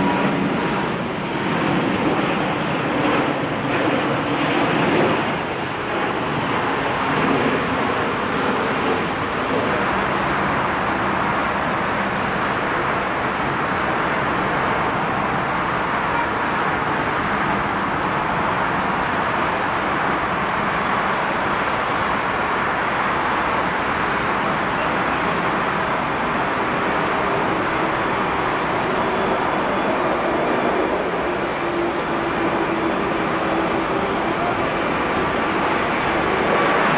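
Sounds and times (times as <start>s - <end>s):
jet engines at takeoff: 0.0s - 36.9s.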